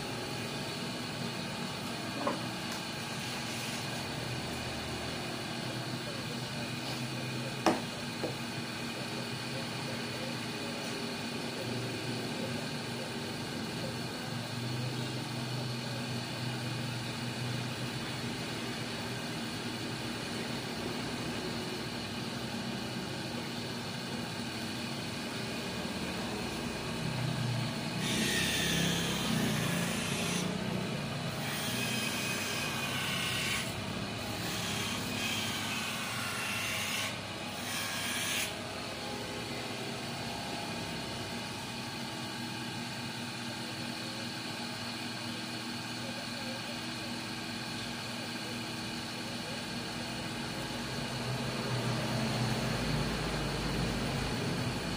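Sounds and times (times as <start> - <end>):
motor running: 24.2 - 44.2.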